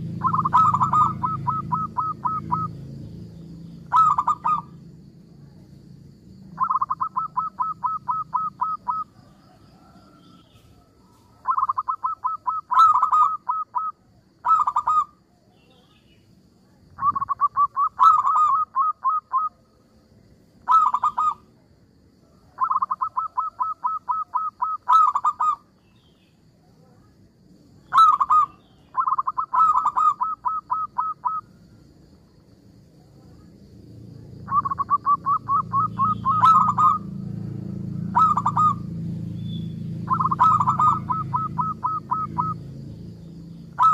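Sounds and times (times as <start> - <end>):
dove cooing in rapid bursts: 0.0 - 2.9, 3.8 - 4.8, 6.6 - 10.0, 11.4 - 15.2, 17.0 - 19.6, 20.6 - 21.5, 22.6 - 25.6, 27.9 - 31.5, 34.5 - 39.0, 39.9 - 42.6.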